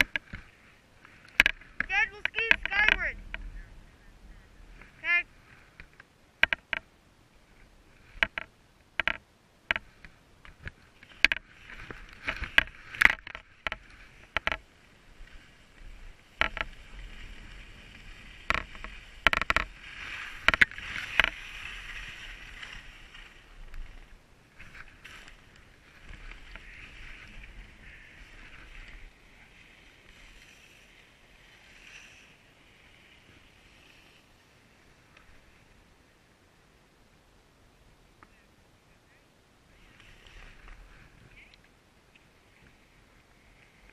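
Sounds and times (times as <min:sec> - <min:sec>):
sharp clicks and knocks: 0:00.0 - 0:00.4, 0:01.3 - 0:03.5, 0:05.8 - 0:06.9, 0:08.2 - 0:14.6, 0:16.4 - 0:16.7, 0:18.5 - 0:19.7, 0:20.4 - 0:21.4
skis scraping over snow: 0:00.0 - 0:03.7, 0:09.8 - 0:36.2, 0:39.7 - 0:41.5, 0:42.4 - 0:43.9.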